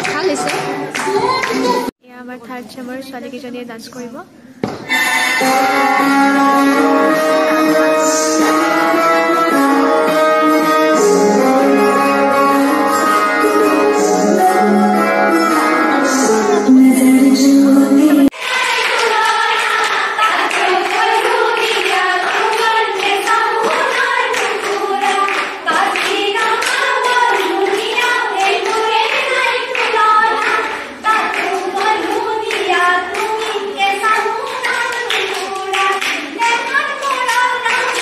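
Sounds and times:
rhythmic handclaps: 0.0s - 1.9s, 18.3s - 38.0s
women singing together: 4.9s - 38.0s.

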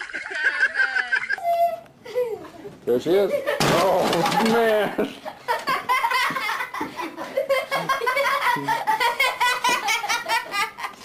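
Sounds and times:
high-pitched laughter: 0.0s - 2.6s.

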